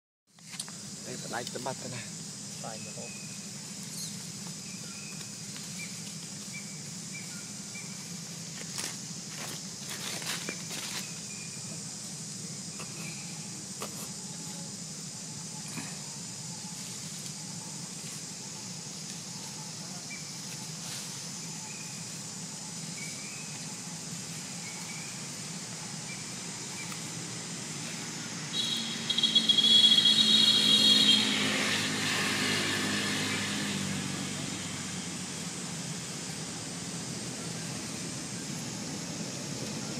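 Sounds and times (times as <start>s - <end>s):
insects buzzing: 0.3s - 39.9s
engine whining past: 23.5s - 39.9s.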